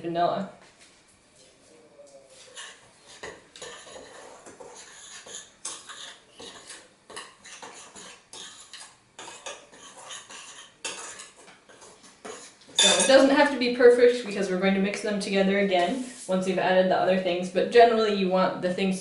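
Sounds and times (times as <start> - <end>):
utensil scraping glass bowl: 2.4 - 13.3.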